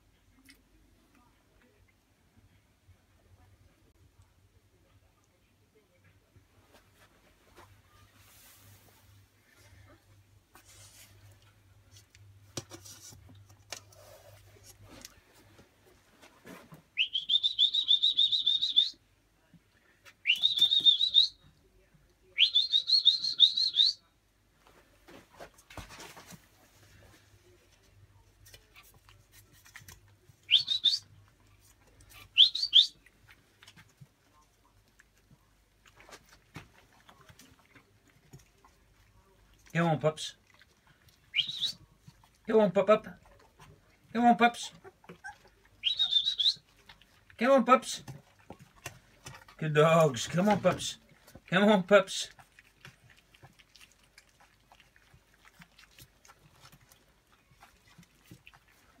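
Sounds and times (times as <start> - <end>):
puppies eating from metal tray: 33.1 - 39.7, 44.7 - 59.0
puppies squeaking: 44.6 - 47.0.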